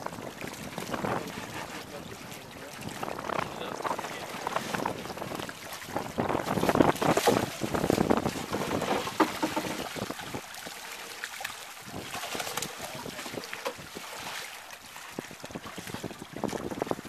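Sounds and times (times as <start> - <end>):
fish splashing in water: 0.0 - 16.8
wet net being handled: 6.5 - 9.9, 11.3 - 14.5.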